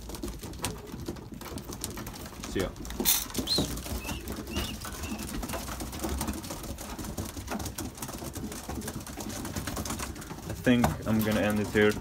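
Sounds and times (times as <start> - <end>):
pigeons cooing: 0.0 - 10.6
beaks pecking and feet clicking: 0.0 - 12.0
high-pitched pigeon calls: 3.0 - 5.8.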